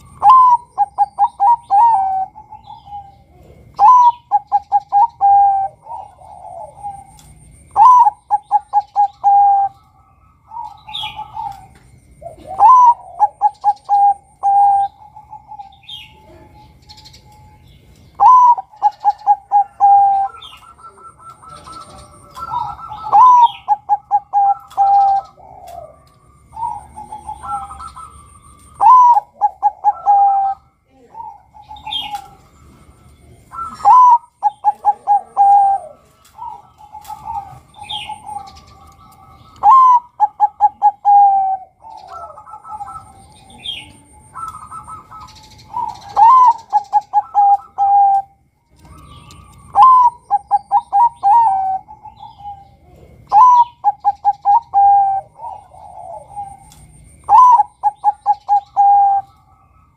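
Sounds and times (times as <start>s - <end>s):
dove cooing: 0.0s - 59.9s
small birds chirping: 0.0s - 59.9s.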